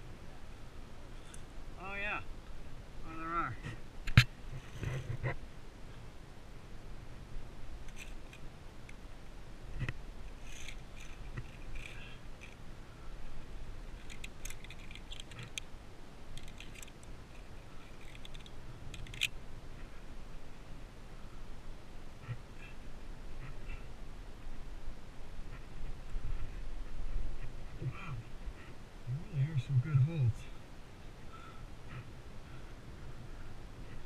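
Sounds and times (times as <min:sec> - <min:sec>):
carabiners clicking on steel cable: 0:10.4 - 0:12.6, 0:14.0 - 0:15.7, 0:16.4 - 0:19.4.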